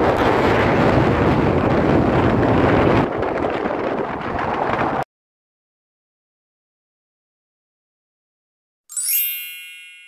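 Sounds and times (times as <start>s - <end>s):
wind buffeting microphone: 0.0s - 5.1s.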